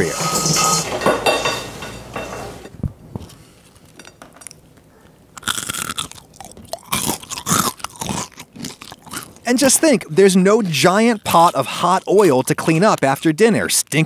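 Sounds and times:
crunchy chewing: 3.2 - 14.0.

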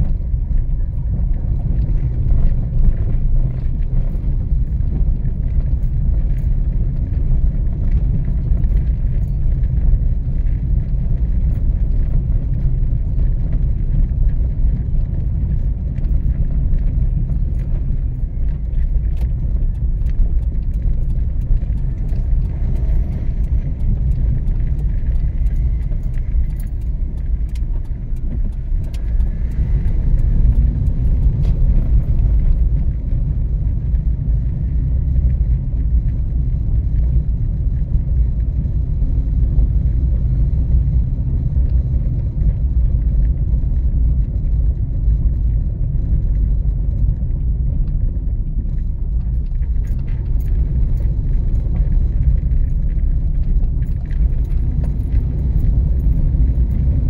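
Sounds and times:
car road and engine rumble: 0.0 - 57.0
light clicks and rattles: 7.8 - 33.6, 48.6 - 57.0.

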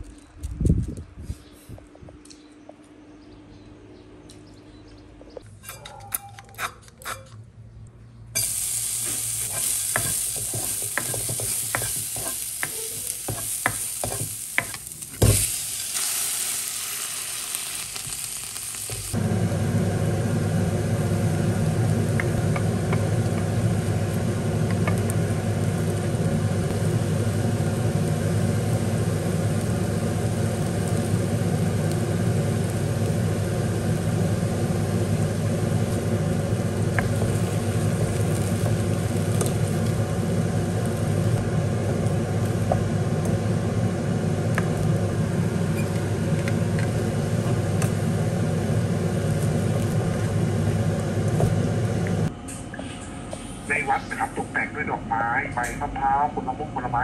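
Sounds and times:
steady frying noise with hum: 8.3 - 57.0
food sizzling in oil: 8.4 - 52.3.

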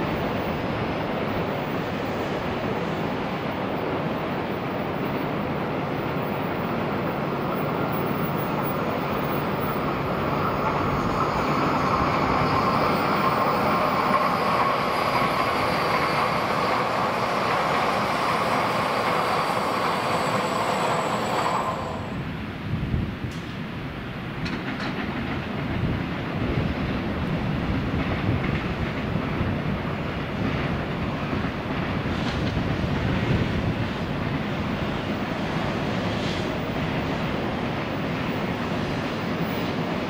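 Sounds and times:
train passing at speed: 0.0 - 40.0.

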